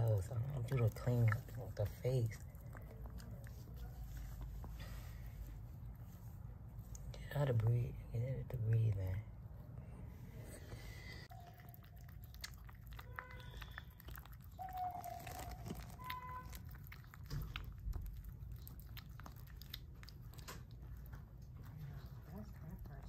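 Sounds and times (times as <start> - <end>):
dog licking and chewing: 0.0 - 5.2, 11.3 - 23.0
puppy squeaking: 11.3 - 17.6.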